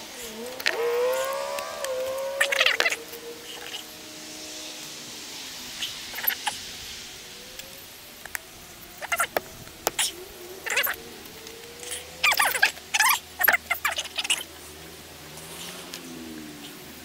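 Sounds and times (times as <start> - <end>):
long drawn-out animal call: 0.0 - 6.5.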